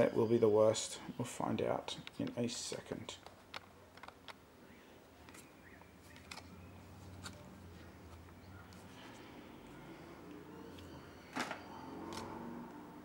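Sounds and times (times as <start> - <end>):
trading cards rustling by hand: 5.1 - 10.0.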